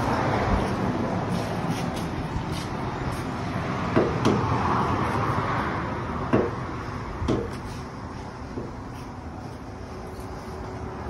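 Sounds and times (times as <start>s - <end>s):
sharp knocks: 3.9s - 4.5s, 6.3s - 6.6s, 7.2s - 7.6s.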